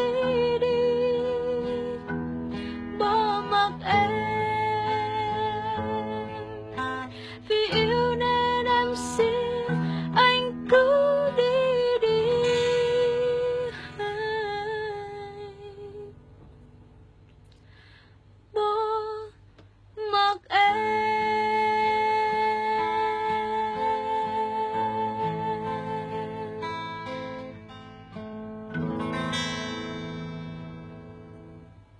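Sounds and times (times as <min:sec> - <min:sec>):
woman singing slow ballad: 0:00.0 - 0:16.3, 0:18.5 - 0:27.5.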